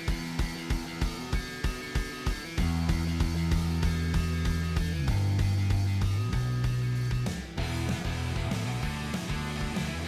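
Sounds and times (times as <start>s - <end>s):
kick drum beat: 0.0s - 9.9s
held bass and guitar tones: 0.0s - 10.0s.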